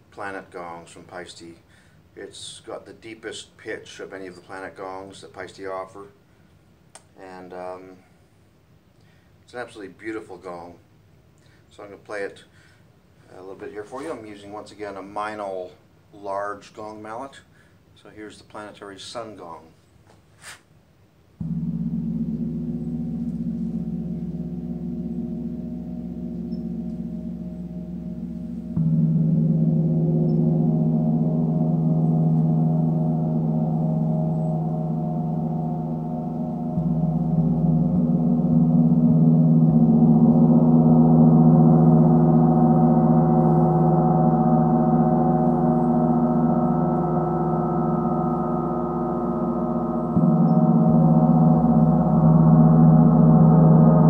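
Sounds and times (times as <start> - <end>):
gong struck with mallet: 21.4 - 54.0.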